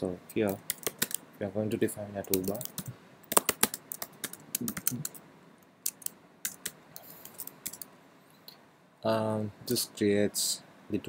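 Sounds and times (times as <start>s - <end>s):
typing on computer keyboard: 0.5s - 1.2s, 2.2s - 5.2s, 5.8s - 7.9s.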